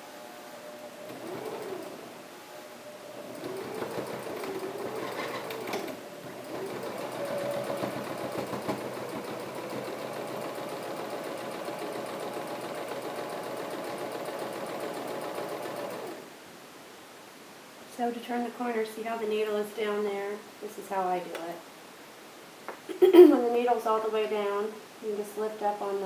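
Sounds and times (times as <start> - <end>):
electric sewing machine stitching: 1.1 - 2.0, 3.2 - 16.3.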